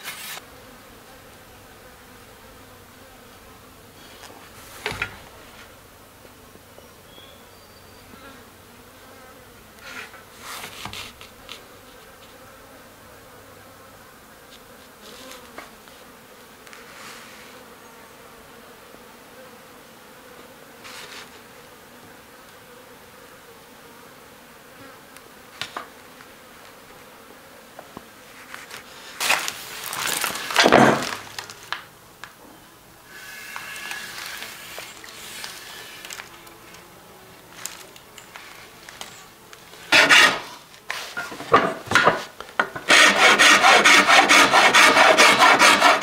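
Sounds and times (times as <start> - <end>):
insect buzzing faintly: 0.0 - 42.9
rustling: 20.8 - 21.4, 28.3 - 31.9, 33.1 - 46.0
scraping on wood: 28.5 - 31.5, 39.8 - 46.0.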